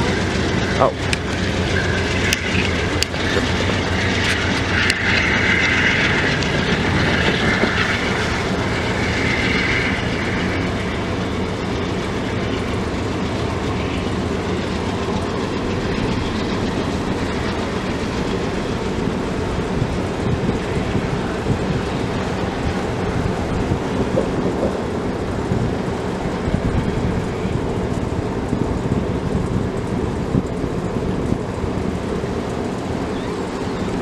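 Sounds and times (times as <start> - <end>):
train wheels rumbling on rail: 0.0 - 34.0
wheel squeal: 33.1 - 34.0.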